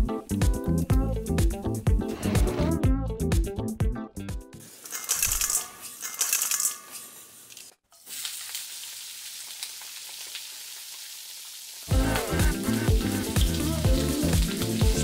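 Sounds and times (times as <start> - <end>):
bursts of sizzling: 4.6 - 15.0.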